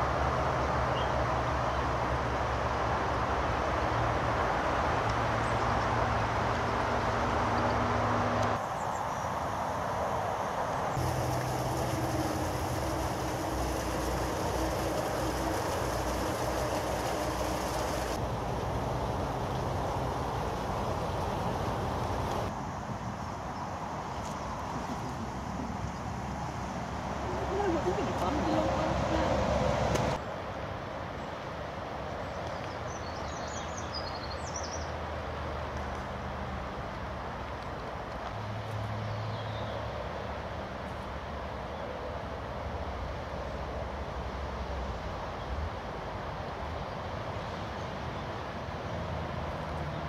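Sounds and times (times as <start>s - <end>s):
outdoor background noise: 0.0s - 50.0s
mechanical rumble with low hum: 11.0s - 18.3s.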